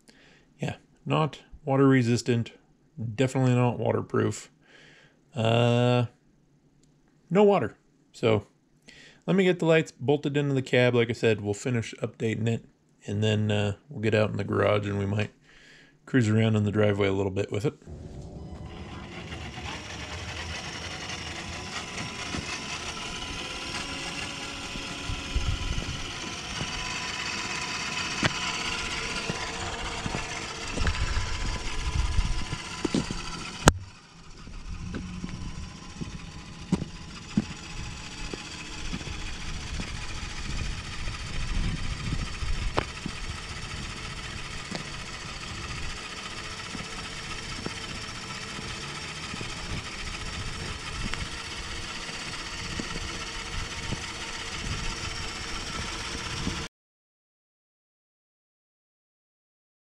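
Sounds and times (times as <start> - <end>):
simulated truck engine from speaker: 16.1 - 56.7.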